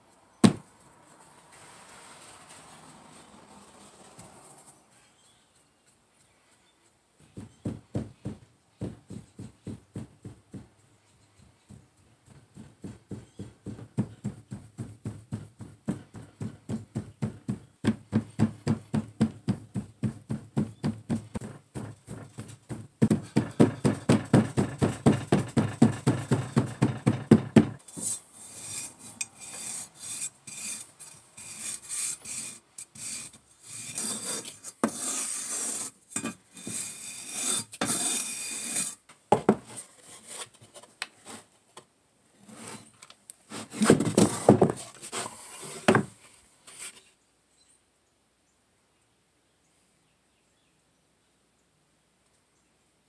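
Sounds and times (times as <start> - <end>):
steel bar scraping sand: 1.5 - 4.8, 27.8 - 39.0, 42.4 - 45.9
metal rammer pounding sand: 12.6 - 27.8.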